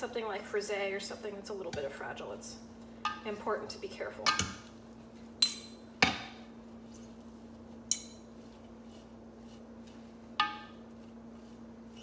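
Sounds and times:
faint steady hum: 0:00.0 - 0:12.0
metal utensil clinking on ceramic bowl: 0:07.9 - 0:08.3.

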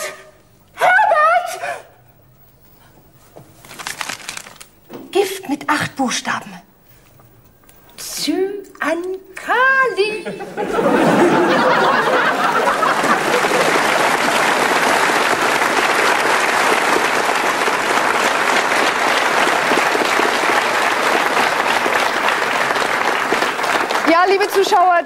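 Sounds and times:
audience applauding: 0:10.9 - 0:25.0.

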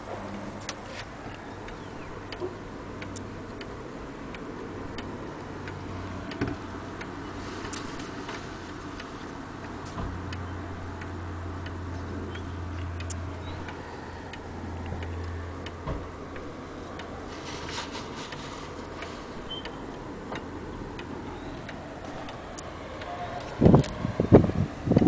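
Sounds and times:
low hum: 0:10.1 - 0:25.0.

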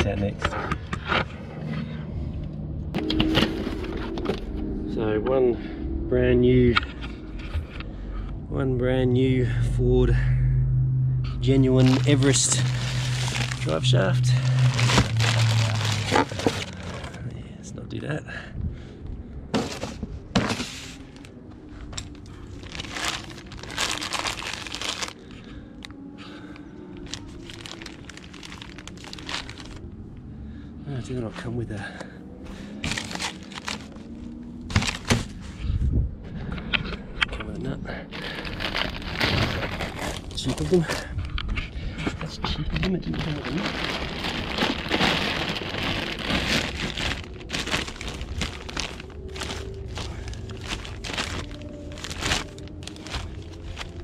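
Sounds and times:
plastic bag crinkling: 0:11.5 - 0:17.3, 0:22.1 - 0:25.3, 0:27.0 - 0:29.8, 0:32.8 - 0:35.3, 0:38.2 - 0:41.1, 0:43.0 - 0:54.0.

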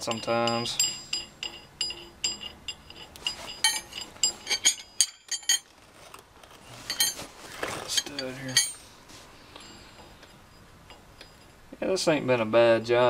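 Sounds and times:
small steel parts clinking: 0:00.0 - 0:05.7, 0:06.8 - 0:08.9.

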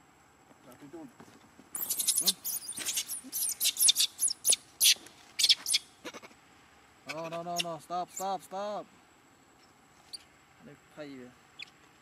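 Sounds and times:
monkeys screaming: 0:01.8 - 0:06.4.

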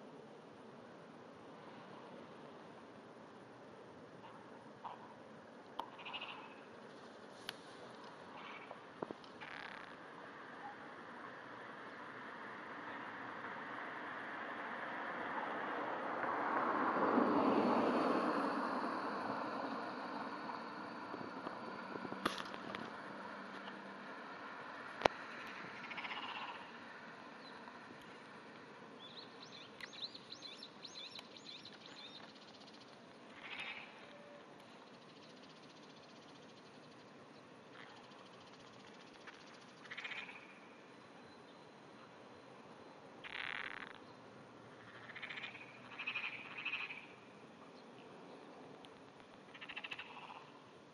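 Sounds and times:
frog pulsed croak: 0:05.8 - 0:06.7, 0:25.0 - 0:26.9, 0:33.3 - 0:34.4, 0:39.8 - 0:40.8, 0:43.2 - 0:44.0, 0:44.7 - 0:47.2, 0:49.5 - 0:50.6
bird chirping: 0:29.0 - 0:40.6, 0:44.9 - 0:48.4.

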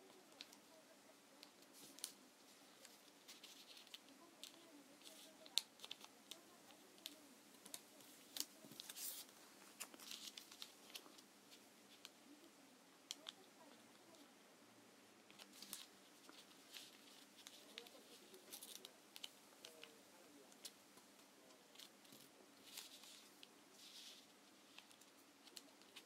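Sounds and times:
paper crinkling and rustling: 0:01.4 - 0:12.2, 0:15.3 - 0:20.8, 0:21.4 - 0:26.0
sharp paper creasing clicks: 0:02.8 - 0:12.2, 0:15.3 - 0:26.0.

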